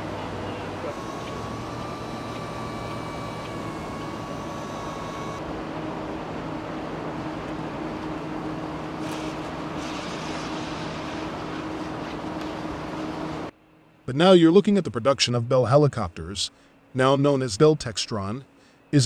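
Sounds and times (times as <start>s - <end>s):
thin whining tones: 0.0s - 5.4s
machinery hum: 0.0s - 19.0s.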